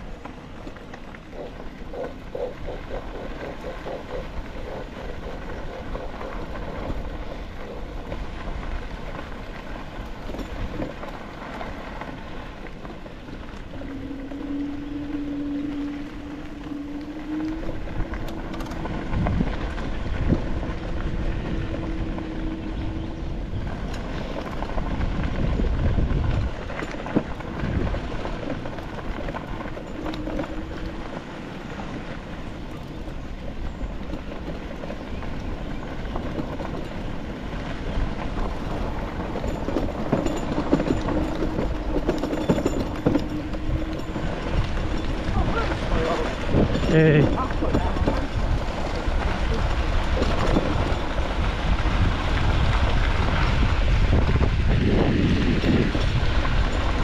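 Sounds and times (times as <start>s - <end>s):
vehicle engine drone: 0.0s - 57.0s
knocks and rattles: 38.2s - 51.8s.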